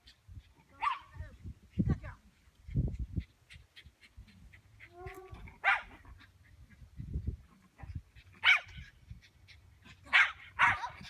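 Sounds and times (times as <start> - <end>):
small dog barking: 0.7 - 1.2, 4.8 - 6.2, 8.4 - 8.9, 10.0 - 11.0.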